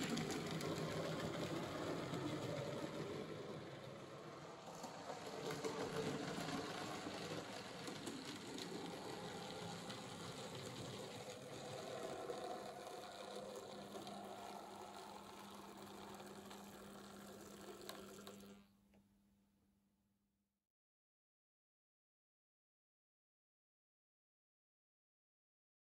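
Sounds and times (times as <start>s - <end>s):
wheels rattling over rails: 0.0s - 18.5s
model train motor whirring: 0.0s - 18.7s.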